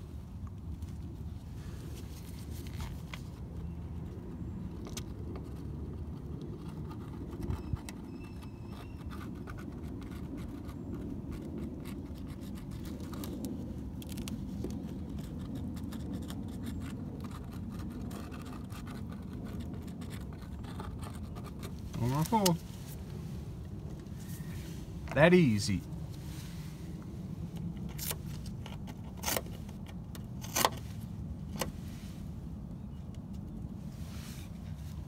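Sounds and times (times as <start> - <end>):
steady low rumble: 9.4 - 35.0.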